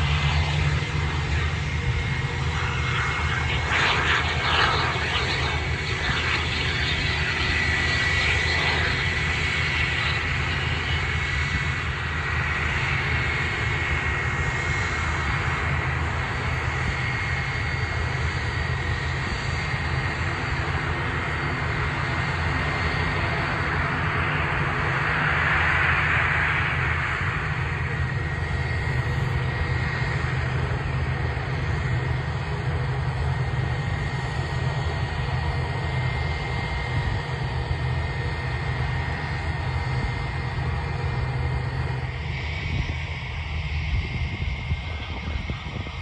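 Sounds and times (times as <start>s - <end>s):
jet engines whining: 0.0s - 46.0s.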